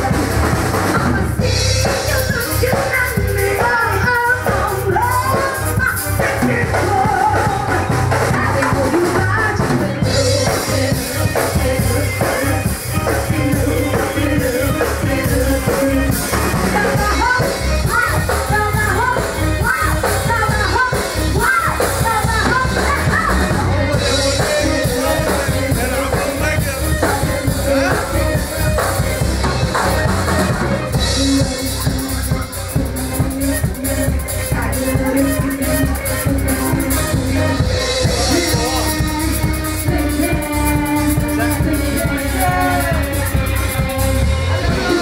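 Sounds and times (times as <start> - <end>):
woman singing into a microphone: 0.0 - 25.8
drum kit: 0.0 - 45.0
electric guitar: 0.0 - 45.0
live band playing loudly: 0.0 - 45.0.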